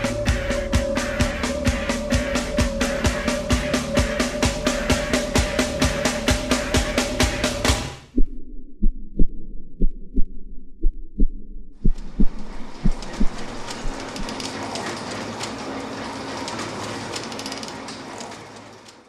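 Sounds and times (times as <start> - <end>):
harsh loud soundtrack: 0.0 - 8.1
muffled heartbeat thumps: 8.1 - 14.4.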